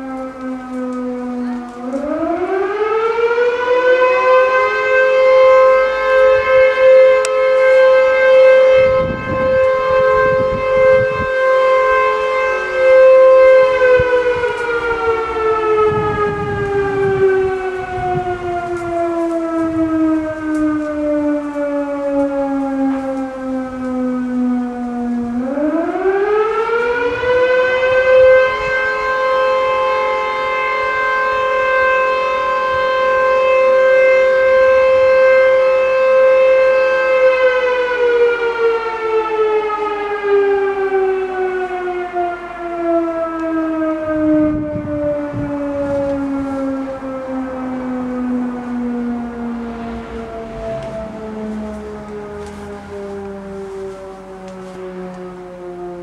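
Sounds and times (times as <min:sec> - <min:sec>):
rotor siren wailing: 0:00.0 - 0:56.0.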